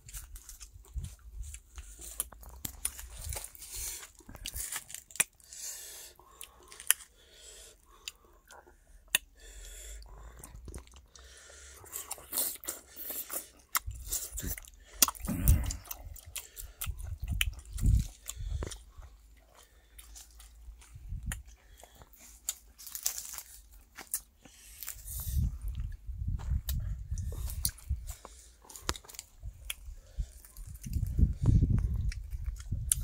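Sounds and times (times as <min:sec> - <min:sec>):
person chewing wetly: 0:00.0 - 0:33.0.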